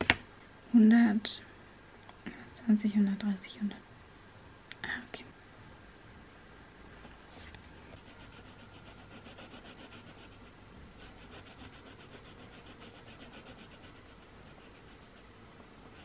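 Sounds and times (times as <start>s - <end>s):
pencil scratching on paper: 8.0s - 15.3s.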